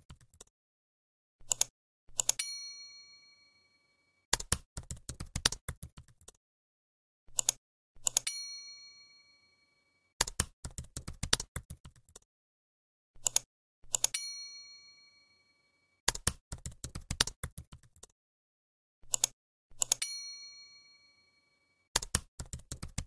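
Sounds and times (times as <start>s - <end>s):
keyboard typing clicks: 1.4s - 2.4s, 4.3s - 6.4s, 7.3s - 8.3s, 10.2s - 12.3s, 13.2s - 14.1s, 16.1s - 18.1s, 19.0s - 20.0s, 22.0s - 23.0s
mouse clicks: 13.2s - 14.1s, 19.1s - 20.0s.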